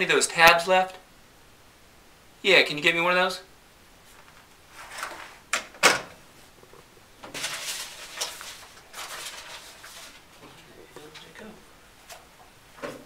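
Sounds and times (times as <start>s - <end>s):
objects scraping and knocking: 6.6s - 11.3s.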